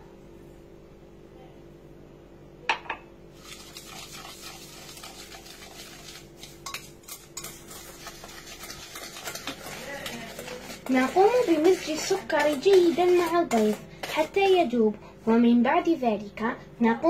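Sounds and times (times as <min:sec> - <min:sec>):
whisk clinking on bowl: 0:03.4 - 0:14.4
whisk clicking and scraping bowl: 0:03.4 - 0:14.9.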